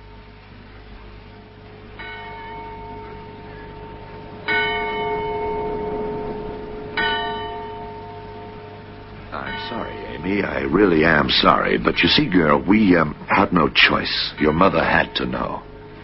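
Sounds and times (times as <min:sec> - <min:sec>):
bell tolling: 0:02.0 - 0:12.2.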